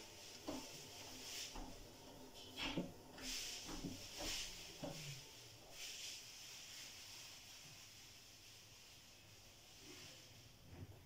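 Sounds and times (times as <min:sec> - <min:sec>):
washing machine drum turning: 0:00.0 - 0:05.4.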